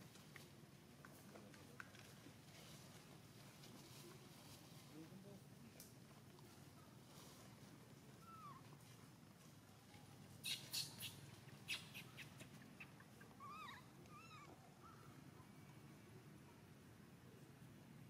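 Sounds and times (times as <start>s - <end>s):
crackling rustles: 0.0s - 15.2s
small animal chirping calls: 10.4s - 15.1s.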